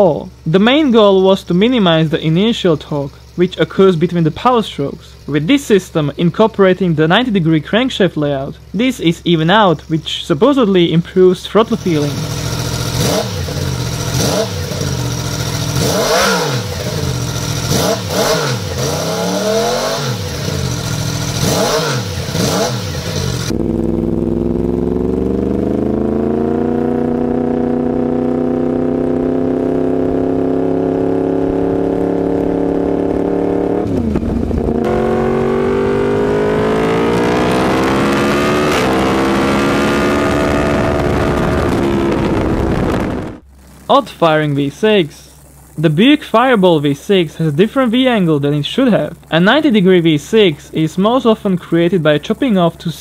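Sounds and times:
motorcycle accelerating: 10.8s - 46.2s
motorcycle engine revving: 11.2s - 46.2s.

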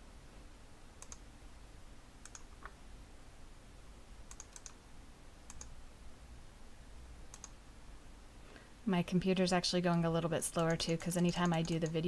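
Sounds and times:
computer mouse clicking: 1.0s - 1.2s, 2.2s - 2.8s, 4.3s - 4.8s, 5.5s - 5.8s, 7.3s - 7.6s, 10.5s - 12.0s.

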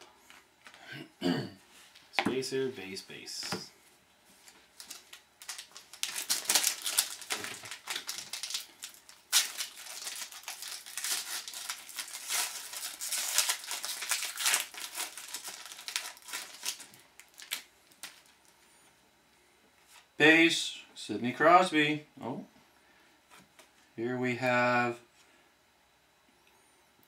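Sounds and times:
foil wrappers crinkling: 4.5s - 18.6s.

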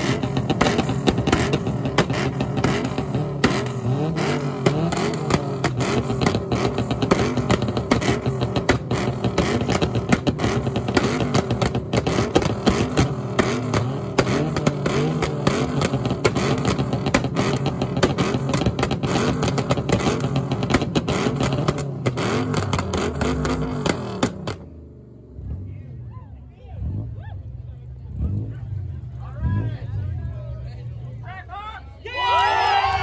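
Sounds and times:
exhaust crackles and pops: 0.0s - 24.8s
car engine revving: 0.0s - 26.0s, 26.7s - 30.8s.

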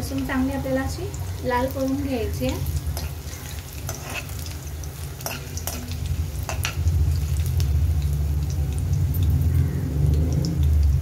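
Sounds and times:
spices sizzling in hot oil: 0.0s - 11.0s
steady low rumble: 5.9s - 10.2s.

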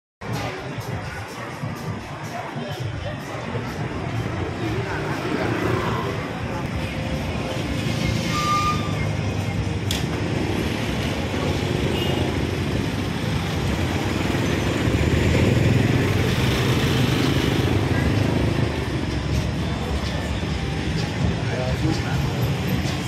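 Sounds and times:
chatter of passers-by: 0.2s - 23.0s
motorbike and scooter traffic: 0.2s - 23.0s.

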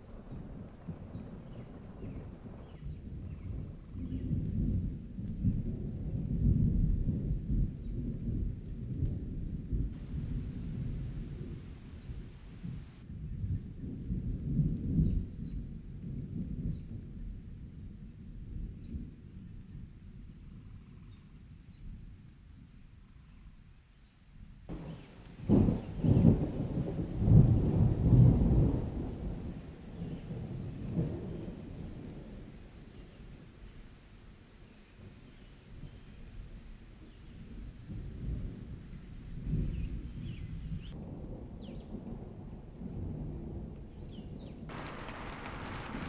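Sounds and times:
rain hiss: 0.0s - 2.8s, 10.0s - 13.0s, 24.7s - 37.2s, 44.7s - 46.0s
thunder rumbling: 0.0s - 15.4s, 24.7s - 33.2s, 37.8s - 46.0s
faint hiss of rain: 0.0s - 46.0s.

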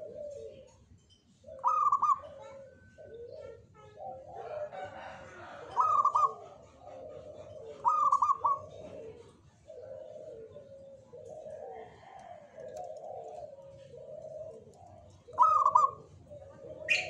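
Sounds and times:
high repeated bird calls: 0.0s - 4.5s, 5.7s - 8.8s, 12.9s - 17.0s
doves cooing: 0.0s - 17.0s.

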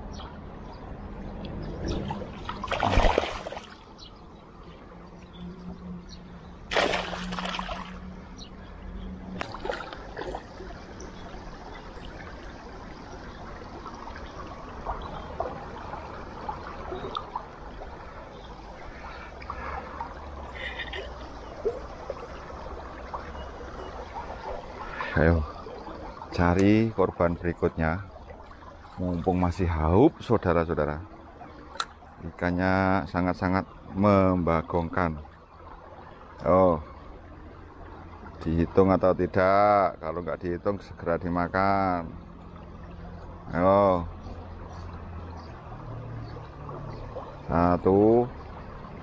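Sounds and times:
water splashing and trickling: 0.0s - 49.0s
loud water splashes: 1.8s - 3.8s, 6.7s - 8.0s.

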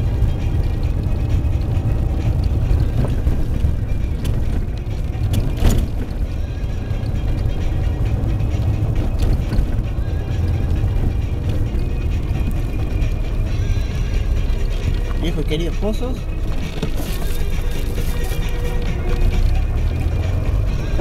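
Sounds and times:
car cabin rumble on rough road: 0.0s - 21.0s
car jolting over bump knock: 2.7s - 6.3s.

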